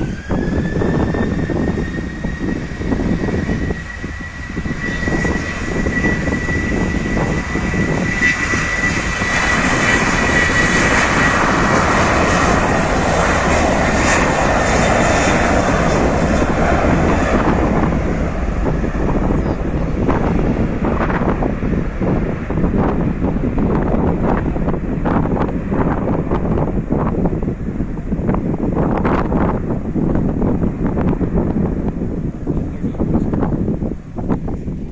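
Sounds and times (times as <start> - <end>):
jet engine roar: 0.0 - 34.9
jet engine whine: 0.0 - 34.9
wind buffeting microphone: 0.0 - 34.9.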